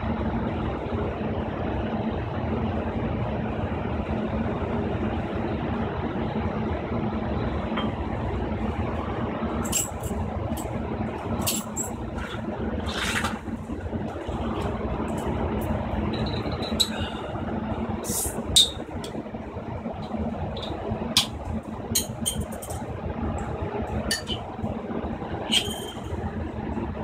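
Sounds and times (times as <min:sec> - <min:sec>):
low traffic rumble: 0:00.0 - 0:27.0
water rushing in bucket: 0:12.2 - 0:13.6.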